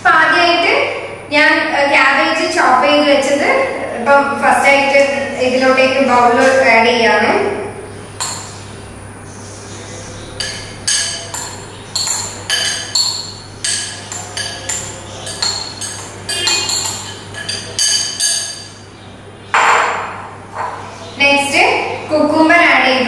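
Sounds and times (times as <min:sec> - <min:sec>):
metal spoon clinking on ceramic bowl: 0:10.4 - 0:18.8.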